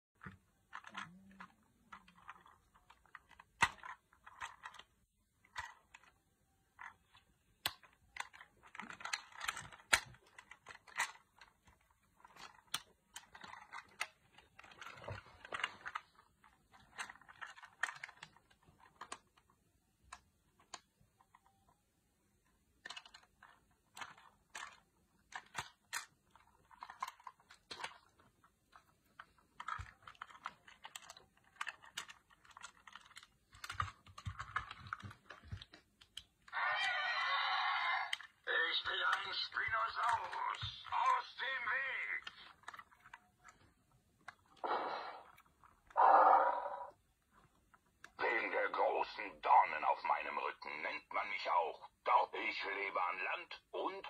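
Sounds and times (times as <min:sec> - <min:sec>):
plastic toy parts clicking: 0:00.2 - 0:37.4, 0:38.0 - 0:44.6
plastic scraping: 0:06.8 - 0:19.6, 0:22.8 - 0:37.3.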